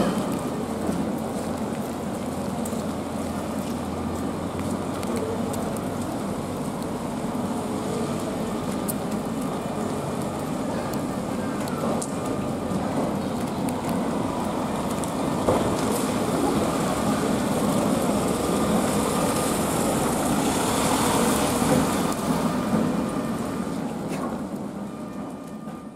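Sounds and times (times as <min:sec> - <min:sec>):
tram drawing up: 0:00.0 - 0:25.9
van driving past on wet road: 0:13.4 - 0:24.1.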